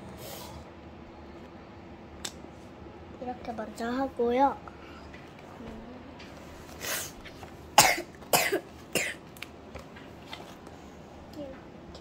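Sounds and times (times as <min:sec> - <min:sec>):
child coughing: 0:07.8 - 0:09.2.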